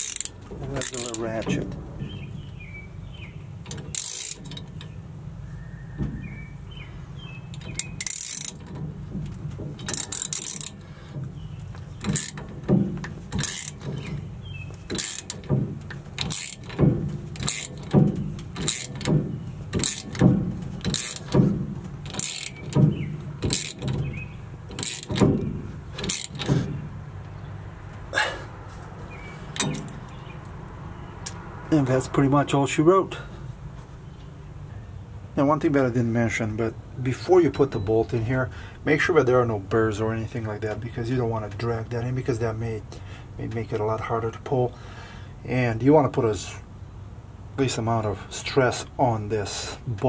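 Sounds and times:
socket ratchet clicking: 0:14.9 - 0:15.5, 0:16.2 - 0:16.8, 0:17.4 - 0:21.4, 0:22.0 - 0:22.8, 0:23.4 - 0:25.4, 0:26.0 - 0:26.5.

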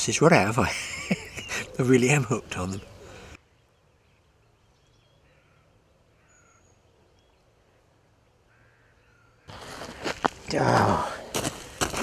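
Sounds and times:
faint bird calls: 0:01.3 - 0:10.2.

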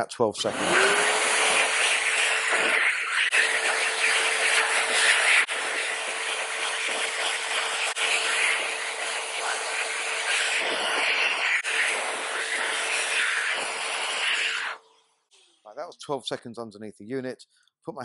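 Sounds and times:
hand dryer blasting air: 0:00.4 - 0:14.8.

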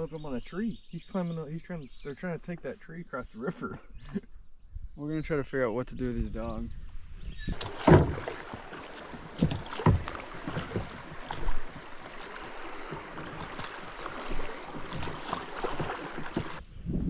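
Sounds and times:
water splashing around a raft: 0:07.4 - 0:16.6.

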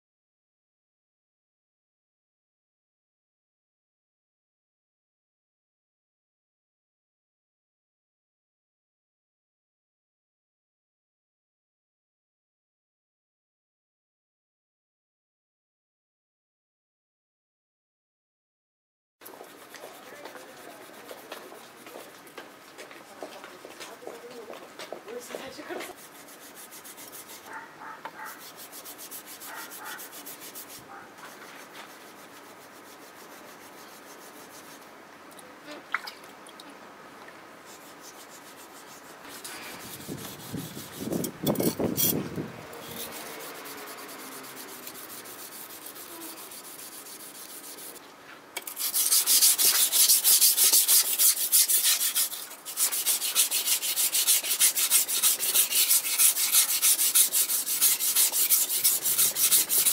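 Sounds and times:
knife grinding on whetstone: 0:19.4 - 0:21.6, 0:25.9 - 0:34.7, 0:37.7 - 0:48.0, 0:48.6 - 0:59.9.

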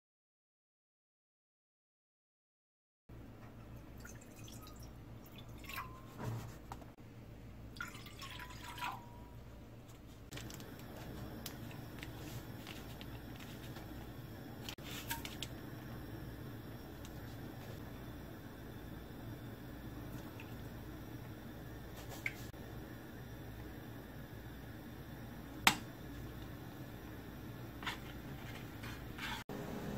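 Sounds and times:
steady low hum: 0:03.1 - 0:29.9
water pouring into metal pot: 0:04.0 - 0:06.0, 0:07.8 - 0:09.2.

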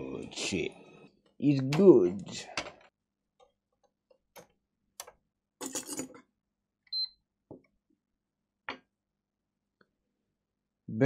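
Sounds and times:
clicks and knocks of parts and tools: 0:01.7 - 0:06.3.

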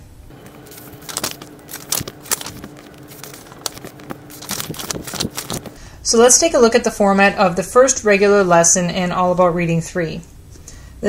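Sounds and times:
paper pages rustling: 0:00.3 - 0:05.8.

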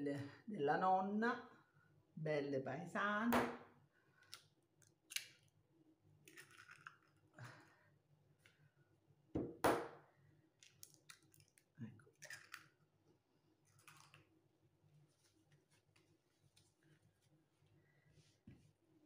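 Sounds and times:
eggs cracking on a bowl: 0:10.6 - 0:12.8, 0:13.7 - 0:14.3.

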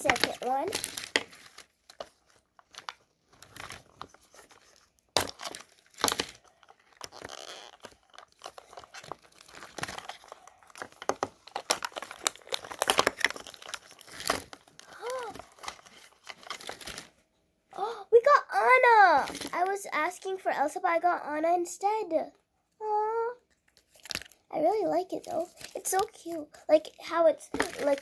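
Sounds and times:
paper wrapping torn and crinkled: 0:00.0 - 0:17.2, 0:23.8 - 0:24.4, 0:25.2 - 0:26.4, 0:27.6 - 0:28.0.

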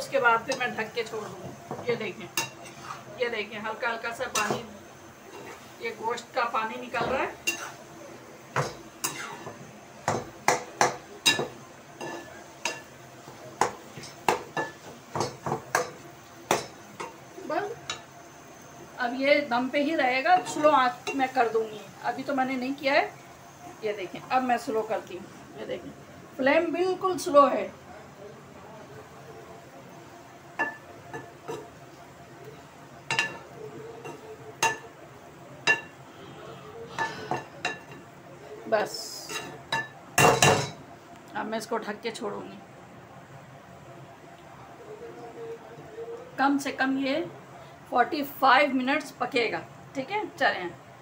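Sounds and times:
spoon scraping a cooking pot: 0:02.4 - 0:03.1, 0:08.6 - 0:09.6
steel spoon clinking against pan: 0:07.4 - 0:07.8, 0:10.5 - 0:12.9, 0:30.6 - 0:31.7.

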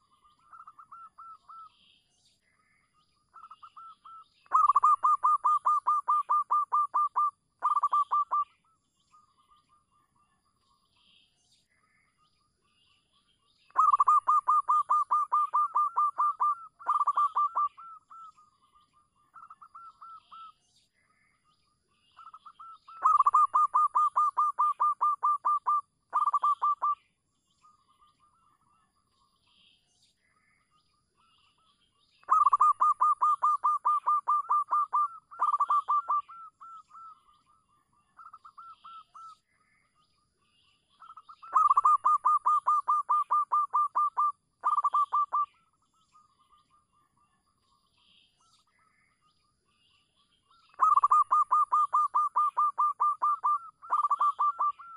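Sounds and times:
dove cooing: 0:04.5 - 0:08.4, 0:13.8 - 0:18.3, 0:22.4 - 0:27.0, 0:32.3 - 0:37.1, 0:41.4 - 0:45.5, 0:50.8 - 0:54.9.

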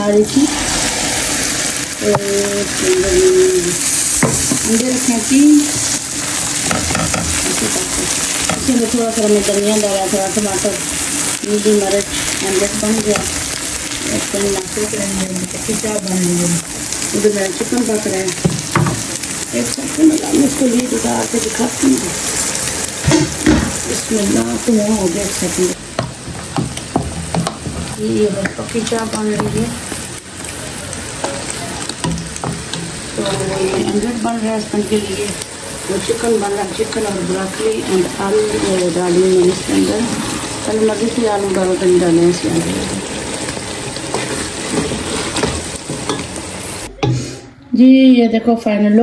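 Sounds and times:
food sizzling in oil: 0:00.0 - 0:47.1
spatula scraping and tapping pan: 0:06.6 - 0:07.7.

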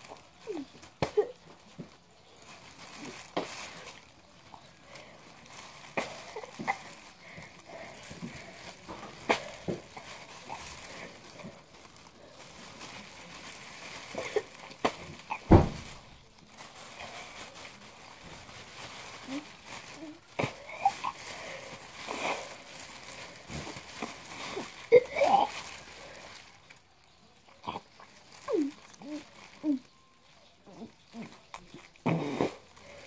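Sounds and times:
plastic bag crinkling: 0:00.0 - 0:33.0
loud thump: 0:15.5 - 0:15.9
person retching and vomiting: 0:32.0 - 0:32.6.

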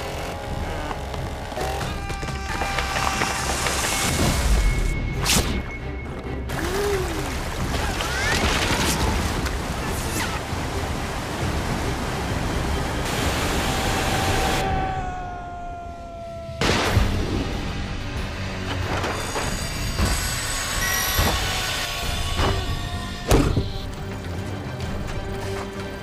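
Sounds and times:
music: 0:00.0 - 0:26.0
rushing surf and water: 0:06.5 - 0:14.8.

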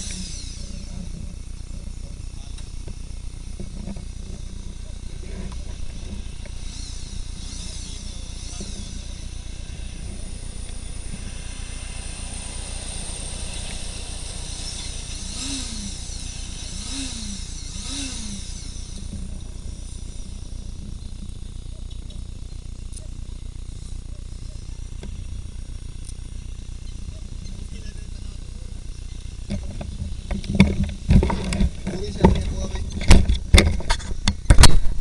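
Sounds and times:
motorcycle and traffic rumble: 0:00.0 - 0:35.0
short rising and falling tones: 0:06.2 - 0:21.1
truck passing: 0:09.2 - 0:18.9.

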